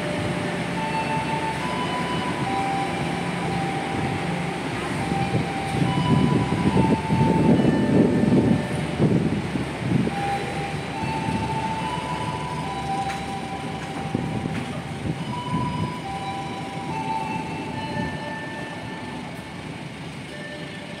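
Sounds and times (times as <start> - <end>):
train rumbling on rails: 0.0 - 21.0.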